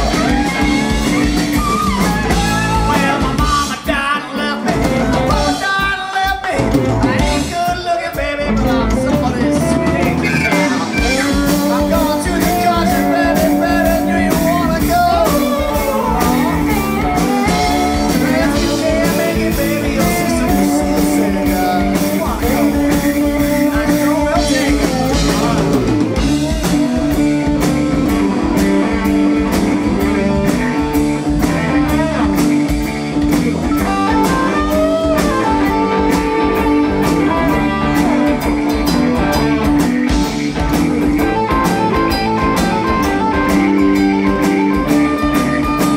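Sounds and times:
man singing: 0.0 - 28.5, 33.7 - 40.3
blues-rock band playing: 0.0 - 45.9
electric guitars: 0.0 - 45.9.

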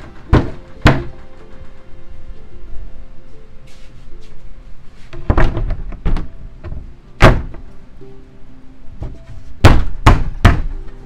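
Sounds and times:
wooden panel thunks: 0.0 - 1.2, 5.2 - 7.6, 9.0 - 10.8
background music: 0.0 - 11.0.

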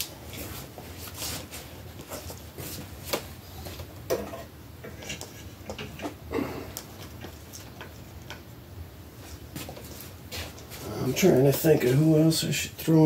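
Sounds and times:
soft rustling: 0.0 - 4.0, 9.2 - 12.3.

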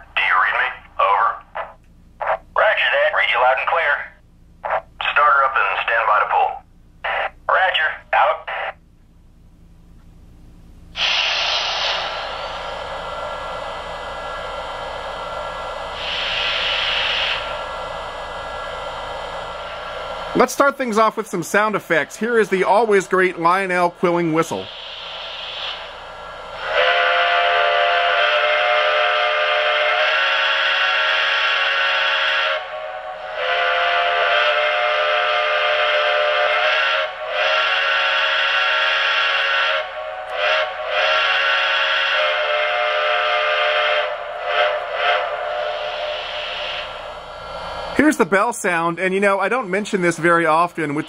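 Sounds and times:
steam hiss through speaker: 11.0 - 36.7, 40.4 - 51.0.

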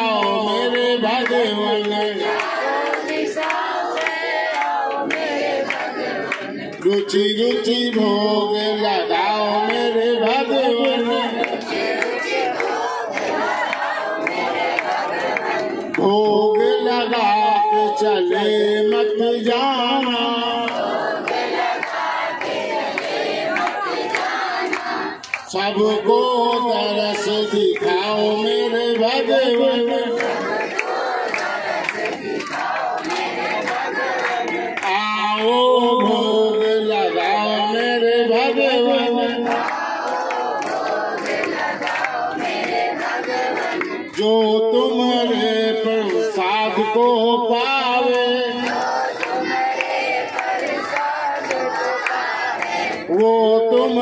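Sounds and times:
crowd singing and chanting: 0.0 - 54.0
hand claps: 0.1 - 8.4, 9.2 - 25.6, 26.4 - 37.5, 39.0 - 46.8, 48.0 - 54.0.

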